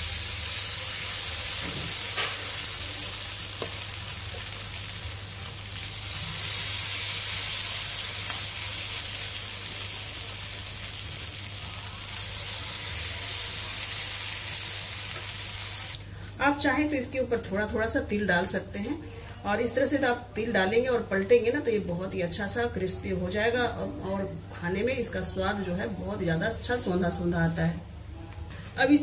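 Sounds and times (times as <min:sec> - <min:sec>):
batter sizzling on a hot pan: 0:00.0 - 0:16.2.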